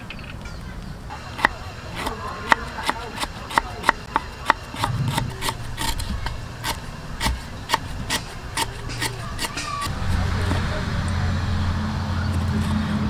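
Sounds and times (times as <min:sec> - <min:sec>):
knife slicing lemongrass: 0:01.4 - 0:10.7.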